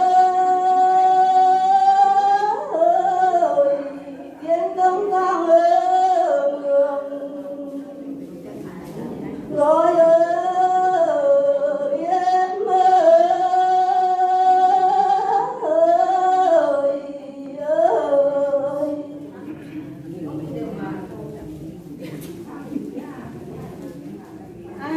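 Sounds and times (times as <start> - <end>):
woman singing into microphone: 0.0 - 8.2, 8.8 - 19.4.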